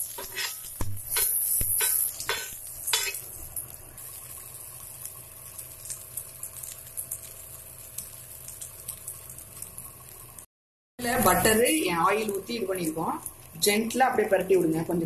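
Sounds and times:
spoon scraping a pan: 0.0s - 3.2s
food sizzling in a pan: 0.0s - 15.0s.

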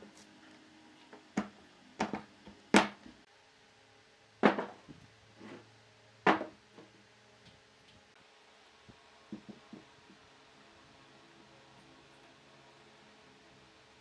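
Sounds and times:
logs knocking on wooden workbench: 4.4s - 5.0s, 6.3s - 6.9s, 9.3s - 9.9s.

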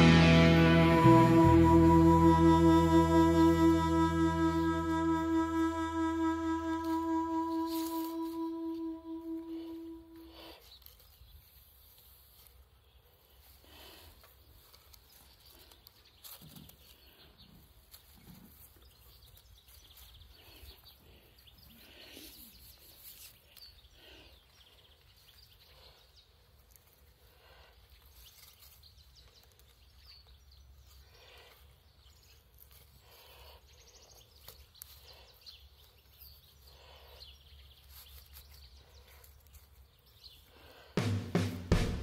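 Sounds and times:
faint rustles and scrapes: 9.5s - 40.9s.

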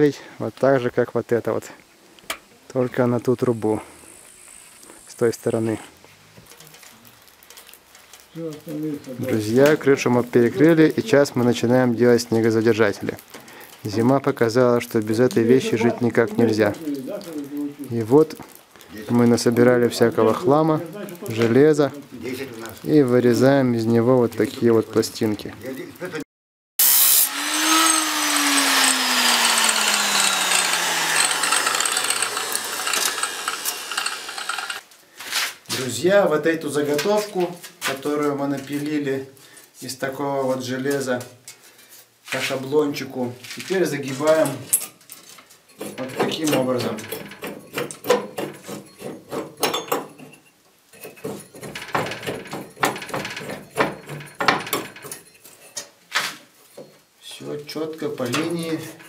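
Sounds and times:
angle grinder cutting steel: 26.8s - 34.8s
metallic clanks and clicks: 51.0s - 55.9s.

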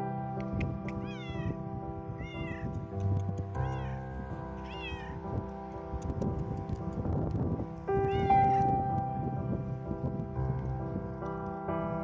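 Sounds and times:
soft piano music: 0.0s - 12.0s
cat meowing loudly: 1.0s - 1.6s, 2.2s - 2.8s, 3.6s - 4.0s, 4.6s - 5.2s, 8.0s - 8.8s.

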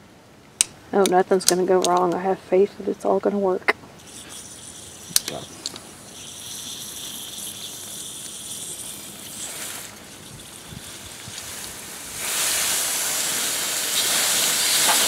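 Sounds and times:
water hissing from pipe: 4.0s - 15.0s.

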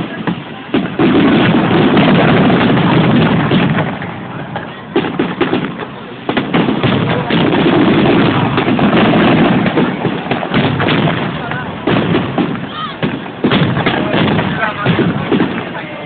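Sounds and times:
fireworks booms and bangs: 0.0s - 16.0s.

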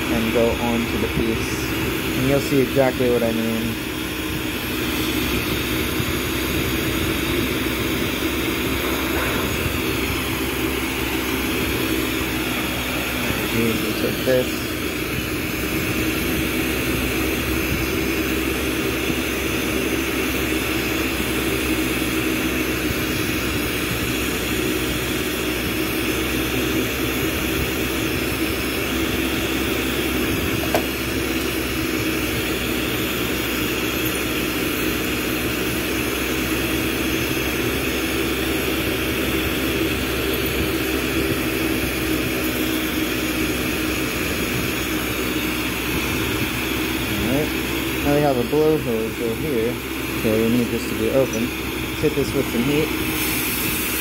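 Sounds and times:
torch flame rushing: 3.4s - 19.7s.

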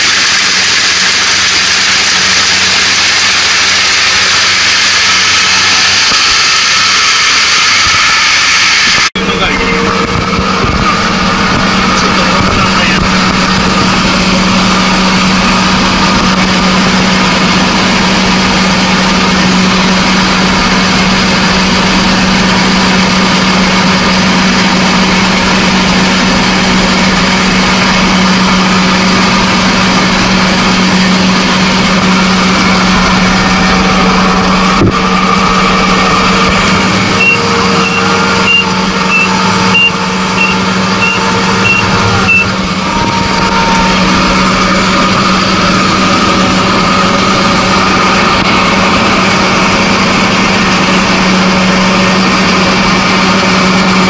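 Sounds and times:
combine harvester running: 0.0s - 54.0s
short high-pitched beeps: 37.2s - 42.5s.

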